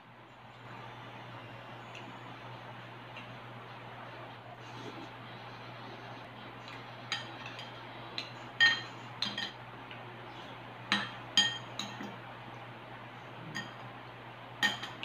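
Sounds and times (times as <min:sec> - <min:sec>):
cutlery clinking on ceramic bowl: 0:07.1 - 0:09.6, 0:10.9 - 0:12.1, 0:13.5 - 0:13.8, 0:14.6 - 0:15.0.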